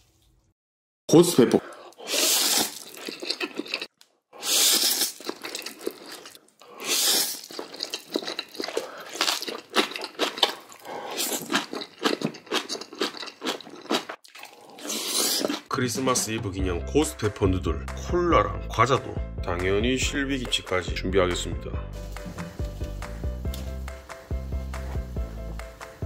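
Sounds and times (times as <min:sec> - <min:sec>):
crunching and chewing: 0:01.7 - 0:15.7.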